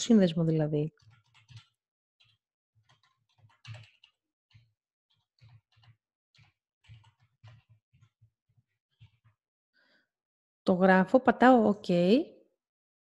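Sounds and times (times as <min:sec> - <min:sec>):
faint keyboard typing: 0:01.0 - 0:08.2.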